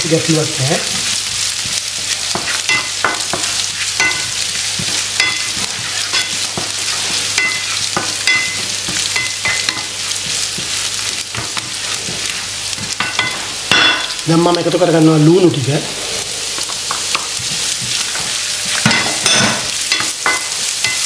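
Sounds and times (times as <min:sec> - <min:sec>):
vegetables sizzling in oil: 0:00.0 - 0:21.0
spatula scraping and tapping pan: 0:00.9 - 0:14.2, 0:16.5 - 0:21.0.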